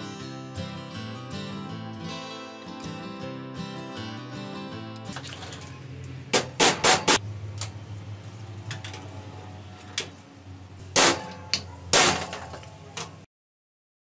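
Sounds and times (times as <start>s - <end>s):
hammer striking metal punch: 6.3s - 7.2s, 11.0s - 12.7s.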